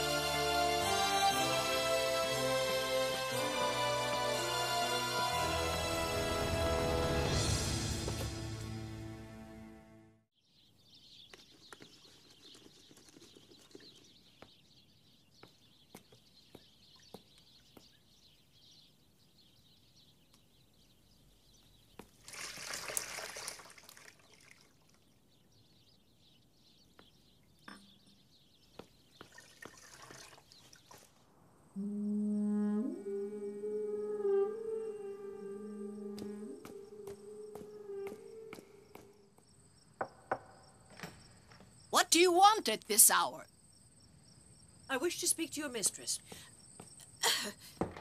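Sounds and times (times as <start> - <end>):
water drips and trickle: 22.0 - 25.2, 29.1 - 31.2
water pouring: 22.2 - 25.1, 29.2 - 31.2.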